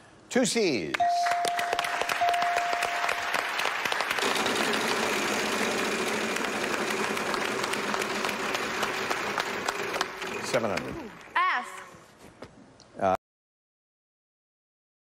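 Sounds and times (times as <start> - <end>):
letter-reveal chime tone: 1.0 - 3.6
studio audience applauding: 1.1 - 11.5.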